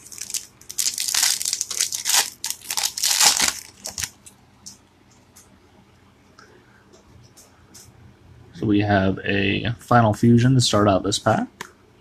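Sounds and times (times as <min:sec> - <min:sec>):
foil wrapper crinkling and tearing: 0:00.0 - 0:04.2.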